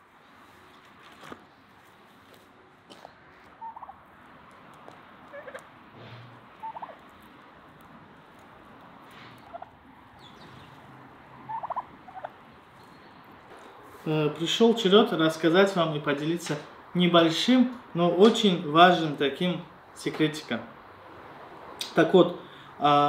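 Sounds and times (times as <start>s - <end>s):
turkey gobbling: 3.5s - 4.0s, 5.2s - 5.7s, 6.3s - 7.2s, 8.4s - 12.4s.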